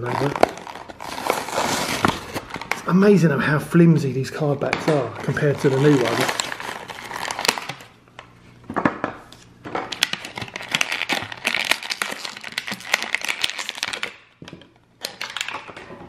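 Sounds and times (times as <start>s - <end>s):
plastic blister crinkling: 0.0s - 2.9s, 4.7s - 8.0s, 9.9s - 14.3s.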